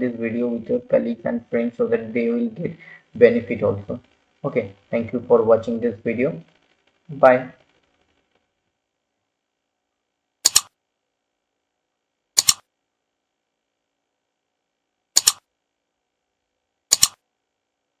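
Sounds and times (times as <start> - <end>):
mouse double clicks: 10.4 - 10.7, 12.4 - 12.6, 15.2 - 15.4, 16.9 - 17.2.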